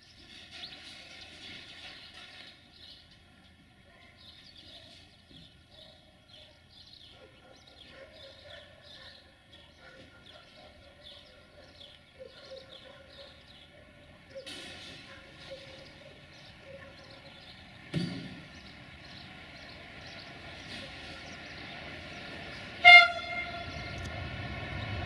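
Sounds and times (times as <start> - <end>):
birds chirping: 0.0 - 25.0.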